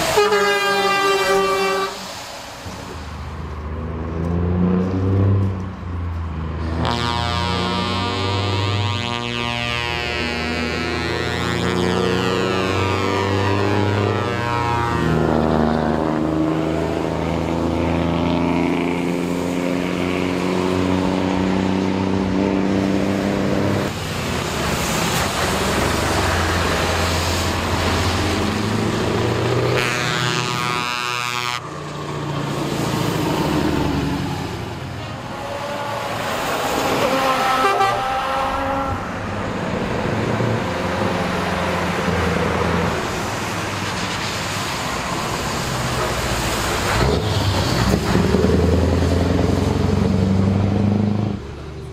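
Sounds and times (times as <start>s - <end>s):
air horn blasts: 0.0s - 2.1s, 6.8s - 15.3s, 29.7s - 31.8s, 35.2s - 39.2s
truck engines through open exhausts: 0.0s - 51.9s.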